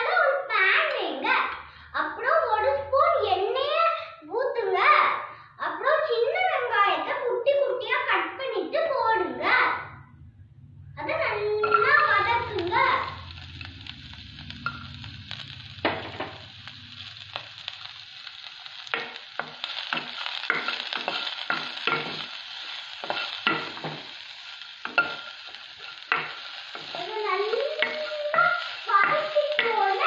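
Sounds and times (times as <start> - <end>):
shallots sizzling in hot oil: 11.6 - 30.0
wooden spatula scraping a pan: 18.9 - 24.2.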